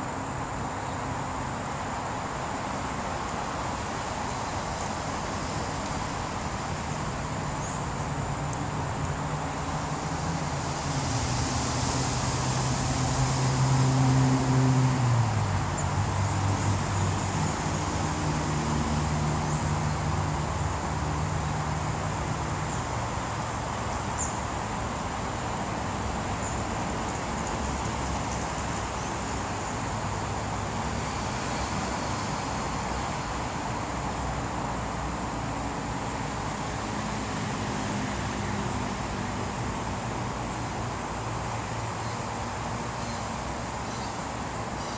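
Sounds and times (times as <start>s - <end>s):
road traffic noise: 0.0s - 44.9s
vehicle engine hum: 0.0s - 44.9s.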